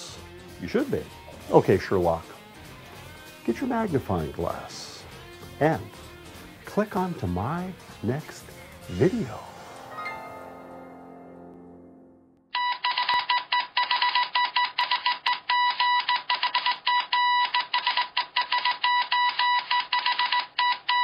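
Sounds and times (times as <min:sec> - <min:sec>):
chime: 0:09.7 - 0:11.4
morse code beeping: 0:12.5 - 0:17.7, 0:18.4 - 0:21.0.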